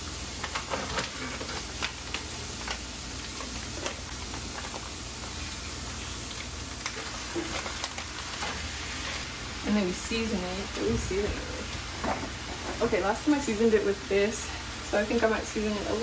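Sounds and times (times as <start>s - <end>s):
onion sizzling in frying pan: 0.0s - 16.0s
plastic package crinkling: 0.3s - 9.0s.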